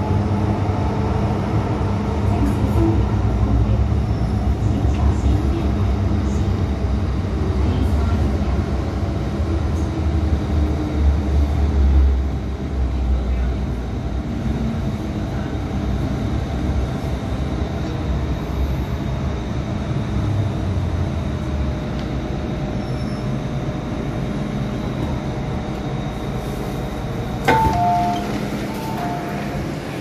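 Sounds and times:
train wheels rumbling: 23.3s - 30.0s
loud clunk: 27.4s - 29.2s
two-note falling chime: 27.5s - 29.6s.

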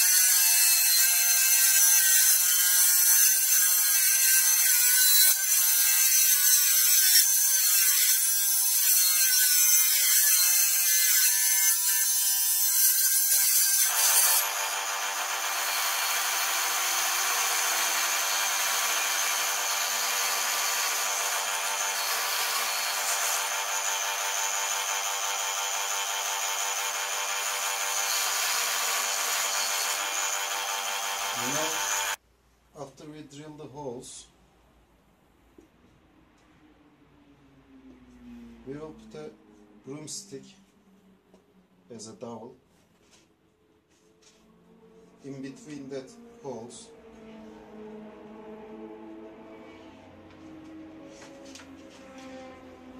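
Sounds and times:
high-pitched power tool on wood: 0.0s - 32.2s.

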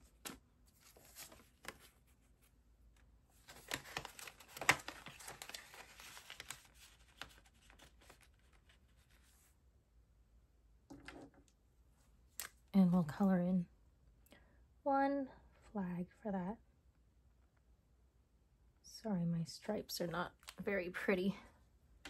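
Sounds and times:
paper banknotes rustling: 0.0s - 2.5s, 3.4s - 9.5s.

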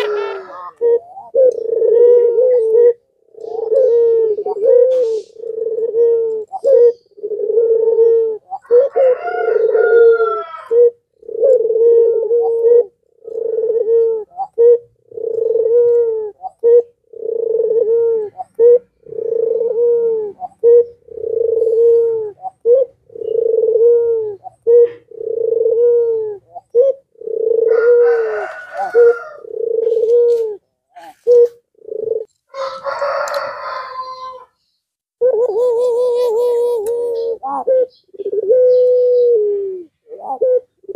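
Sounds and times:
higher rough bird call: 0.0s - 1.2s, 3.5s - 5.6s
dove cooing: 0.0s - 34.6s, 35.2s - 40.9s.

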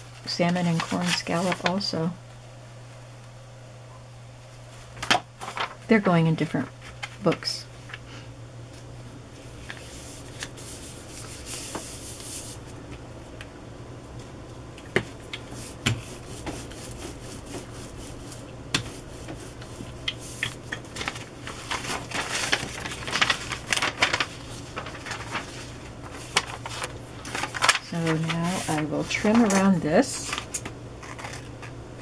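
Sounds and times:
paper rubbing and rustling: 0.0s - 1.9s, 4.8s - 6.1s, 9.4s - 12.8s, 15.3s - 31.6s.

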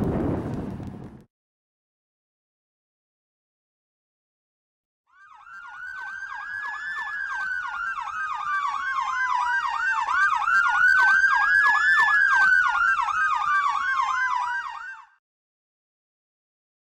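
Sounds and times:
siren wailing slowly: 5.1s - 15.2s
electronic siren yelping: 5.2s - 15.2s.

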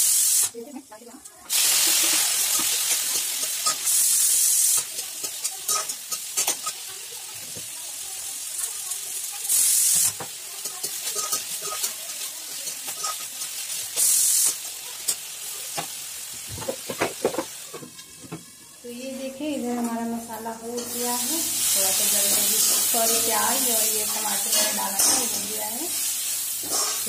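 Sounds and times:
loud hiss bursts: 0.0s - 0.6s, 1.5s - 4.9s, 9.4s - 10.2s, 13.9s - 14.6s
low sizzle: 0.0s - 27.0s
metal spatula scraping pan: 26.6s - 27.0s.

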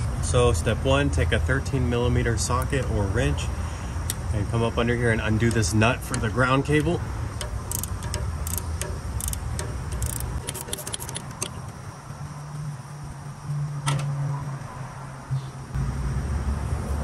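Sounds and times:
ratchet wrench clicking: 5.4s - 11.7s.

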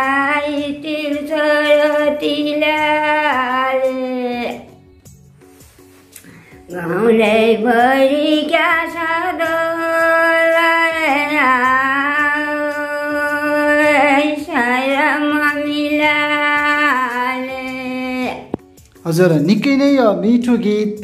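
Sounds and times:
woman singing unaccompanied: 0.0s - 4.8s, 6.7s - 18.6s.

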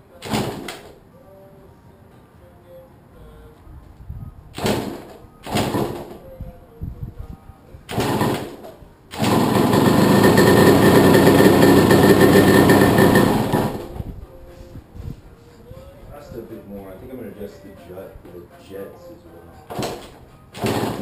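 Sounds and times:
two-stroke engine running: 9.2s - 13.9s.

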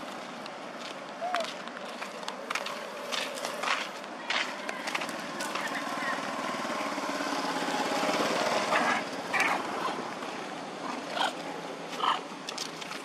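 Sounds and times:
bike wheels rolling over gravel: 0.0s - 6.3s.

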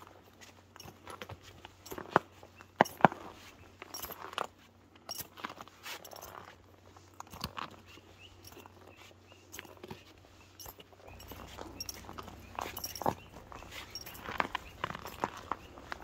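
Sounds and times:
footsteps on snow: 5.5s - 16.0s.

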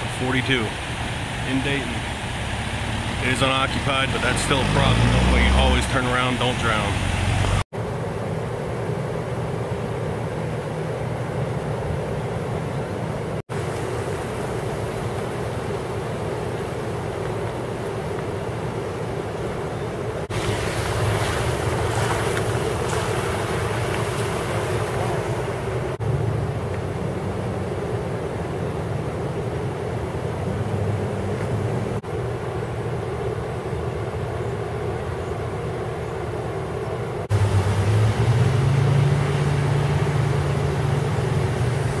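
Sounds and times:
idling engine drone: 0.0s - 7.6s, 20.2s - 42.0s
creek rushing: 0.0s - 8.0s, 10.0s - 35.8s, 37.2s - 42.0s.

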